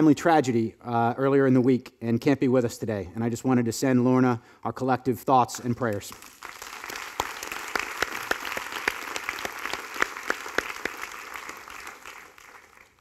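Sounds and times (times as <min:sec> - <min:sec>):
sharp claps of one person: 0:05.8 - 0:13.0
audience applauding: 0:05.9 - 0:13.0.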